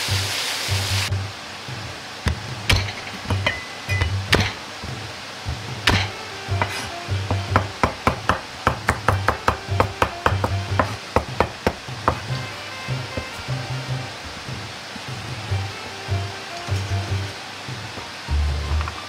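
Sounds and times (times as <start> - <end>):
background music: 0.0 - 19.0
cleaver chopping on cutting board: 2.3 - 4.6, 5.9 - 12.4
heavy knocks of blade crushing: 2.3 - 4.6, 5.8 - 12.3.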